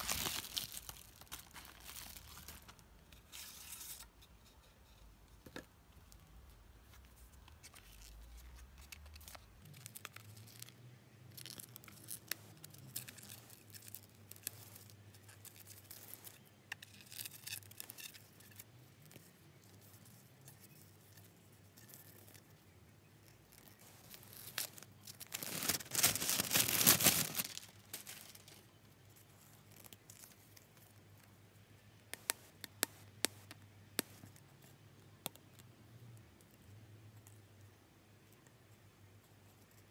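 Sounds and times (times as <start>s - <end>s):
wrapping tearing and crinkling: 0.0s - 4.1s, 7.5s - 18.6s, 23.2s - 28.8s
paper rustles: 23.5s - 28.7s.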